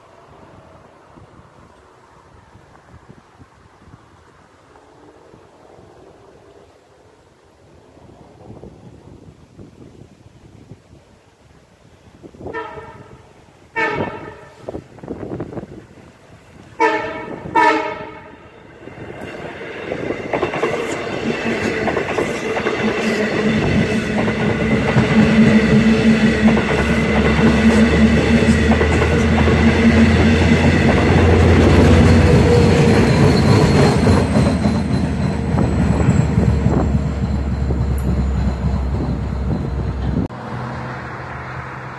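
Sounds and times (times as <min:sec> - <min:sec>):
train horn blasts: 0:12.4 - 0:14.8, 0:16.8 - 0:18.5
train wheels clattering: 0:19.1 - 0:40.3.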